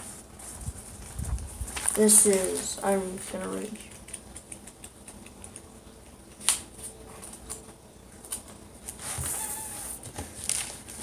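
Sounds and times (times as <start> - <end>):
notebook pages rustling: 0.0 - 2.9, 8.3 - 11.0.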